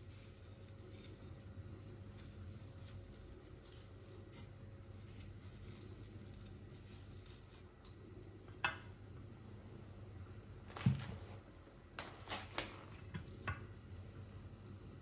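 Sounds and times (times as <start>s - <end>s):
knife scraping apple: 0.0s - 7.8s
low room hum: 0.0s - 15.0s.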